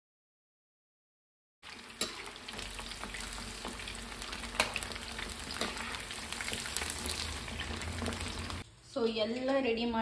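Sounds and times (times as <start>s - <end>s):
meat deep-frying in hot oil: 1.6s - 8.7s
metal spoon stirring: 3.0s - 8.4s.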